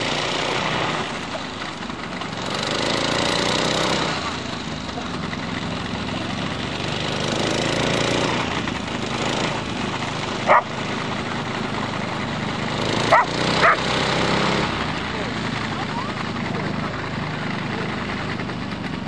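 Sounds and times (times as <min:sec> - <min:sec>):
motor engine drone: 0:00.0 - 0:19.0
dog barking: 0:10.5 - 0:10.7, 0:13.1 - 0:13.8.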